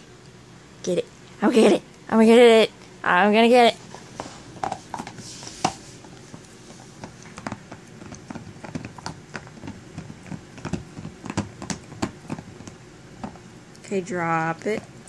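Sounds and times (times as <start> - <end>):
dog chewing a toy: 3.9 - 13.9.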